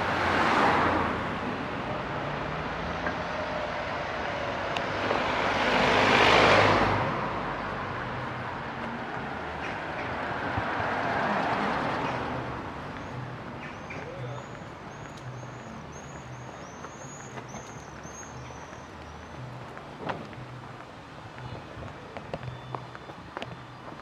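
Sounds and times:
passing vehicle: 0:00.0 - 0:24.0
songbird chirping: 0:11.4 - 0:20.8, 0:22.4 - 0:24.0.

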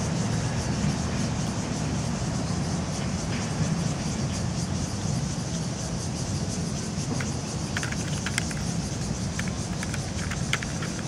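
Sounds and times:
plastic toy frame clicking: 0:07.2 - 0:11.0.

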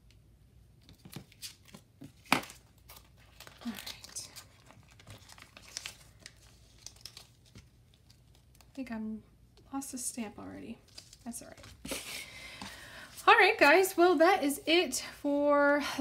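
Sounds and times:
plastic packaging crinkling: 0:01.3 - 0:08.8, 0:10.8 - 0:11.8.

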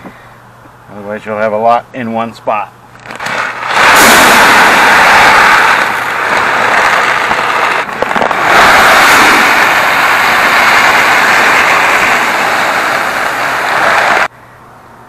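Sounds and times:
fertilizer pellets pouring into hopper: 0:03.0 - 0:14.2.

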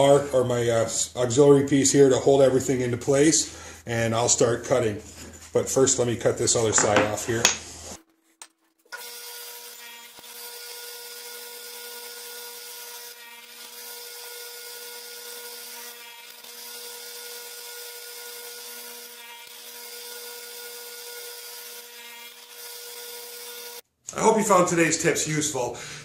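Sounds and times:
saw blade cutting wood: 0:08.9 - 0:23.8
table saw humming: 0:08.9 - 0:23.8.

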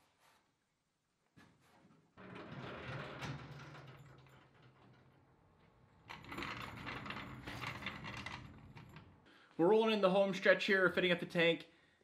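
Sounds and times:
floor jack metal clatter and scraping: 0:02.2 - 0:09.0.

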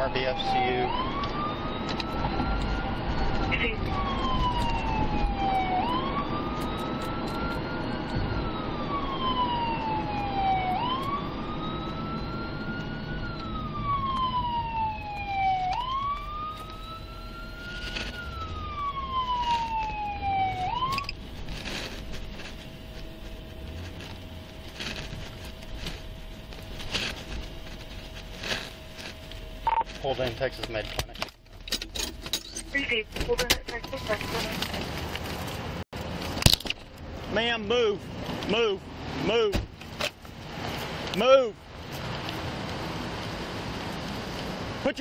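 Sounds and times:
police siren wailing: 0:00.0 - 0:21.8, 0:32.6 - 0:35.1.

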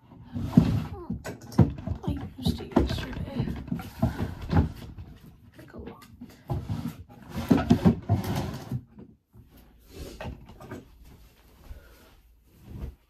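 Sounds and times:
objects clattering in a drawer: 0:00.0 - 0:09.2.

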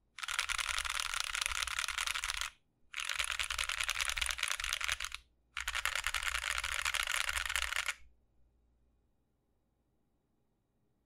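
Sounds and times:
mechanical keyboard typing: 0:00.2 - 0:08.0.

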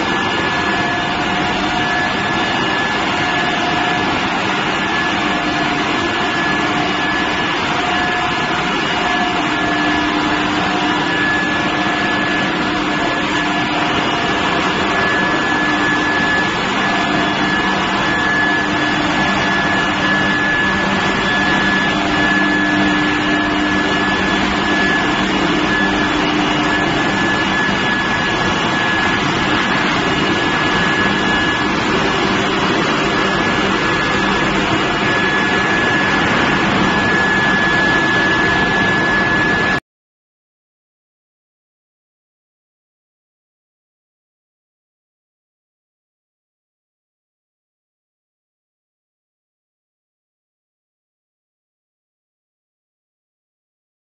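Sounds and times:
high-pitched machine whine: 0:00.0 - 0:39.8
low machine hum: 0:08.8 - 0:39.7.

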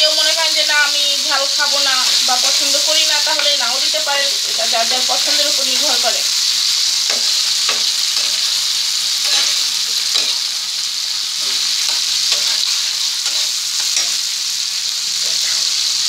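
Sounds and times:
vegetables sizzling in a pan: 0:00.0 - 0:16.0
metal spatula scraping pan: 0:09.2 - 0:10.5, 0:11.4 - 0:14.2.

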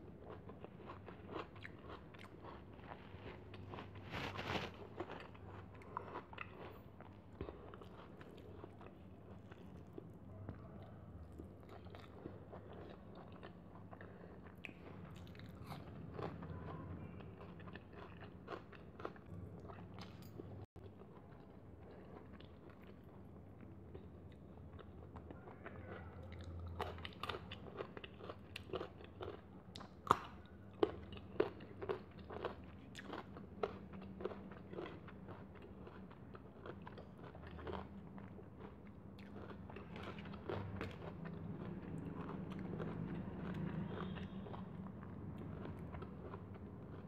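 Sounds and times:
person chewing and crunching food: 0:00.0 - 0:47.0.

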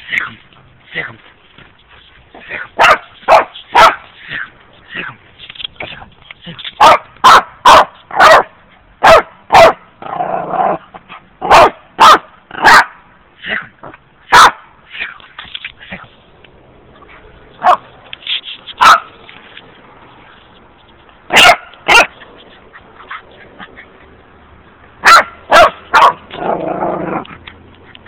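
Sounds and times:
dog barking: 0:02.8 - 0:04.0, 0:06.8 - 0:09.8, 0:11.4 - 0:13.0, 0:14.3 - 0:14.6, 0:17.6 - 0:17.8, 0:18.8 - 0:19.1, 0:21.3 - 0:22.1, 0:25.0 - 0:26.2.

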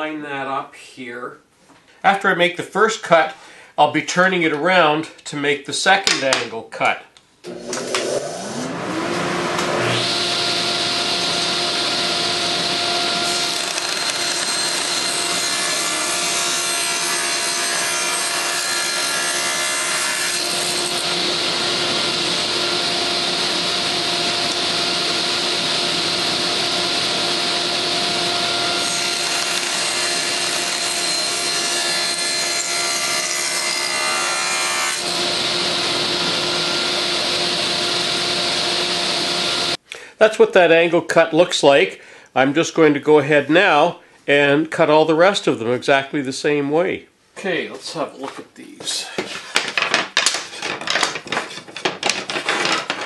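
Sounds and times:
table saw cutting wood: 0:07.5 - 0:39.8.

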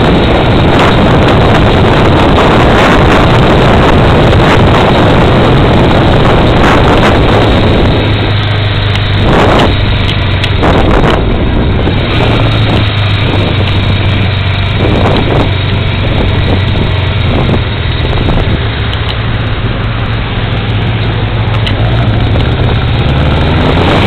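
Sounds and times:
motorcycle engine running: 0:00.0 - 0:24.0
wind gusting on microphone: 0:00.0 - 0:24.0.

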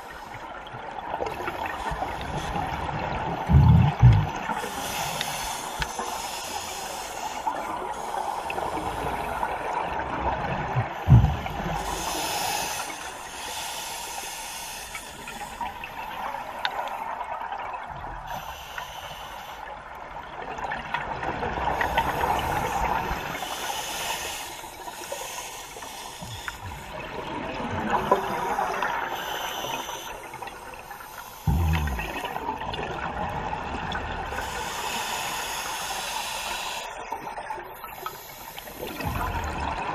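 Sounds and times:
exhaust bubbles gushing: 0:02.6 - 0:04.6, 0:10.0 - 0:11.9, 0:31.4 - 0:34.4
diver breathing through regulator: 0:03.4 - 0:09.6, 0:10.8 - 0:15.8, 0:21.8 - 0:27.0, 0:28.0 - 0:32.4, 0:34.3 - 0:37.0
low thumps: 0:11.0 - 0:11.6.

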